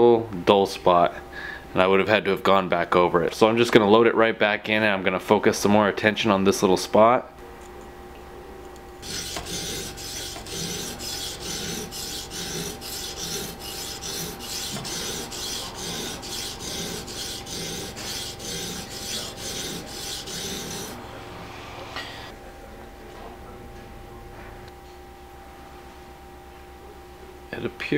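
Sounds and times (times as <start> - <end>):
sharpening stone scraping blade: 9.0 - 21.0.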